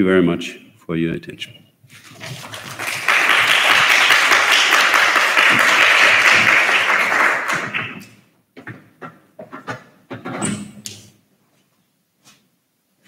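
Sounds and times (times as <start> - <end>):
audience applauding: 2.0 - 8.1.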